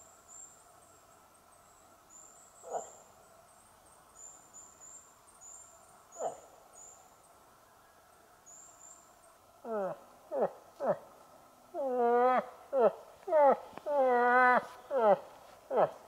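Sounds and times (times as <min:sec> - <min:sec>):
moose call imitation: 0:11.7 - 0:16.0.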